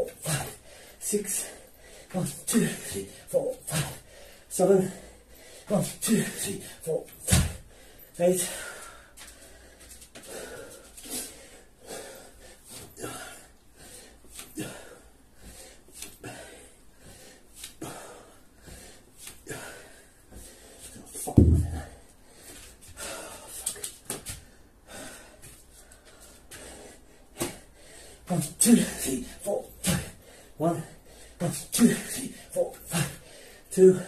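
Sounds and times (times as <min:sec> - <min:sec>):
man breathing hard and wheezing: 0:00.0 - 0:34.0
loud thud: 0:21.4 - 0:22.0.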